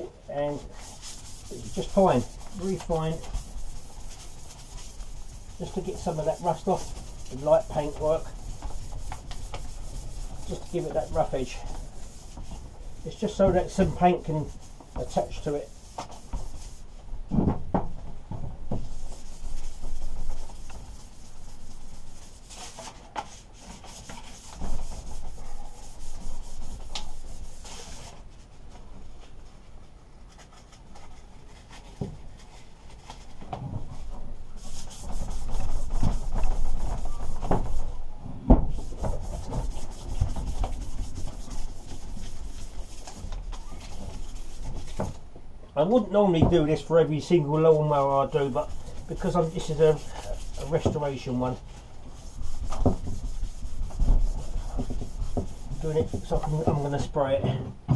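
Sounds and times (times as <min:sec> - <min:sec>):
sandpaper rubbing on metal: 0:00.6 - 0:16.9, 0:18.8 - 0:28.1, 0:34.6 - 0:37.9, 0:38.7 - 0:45.2, 0:46.8 - 0:56.6.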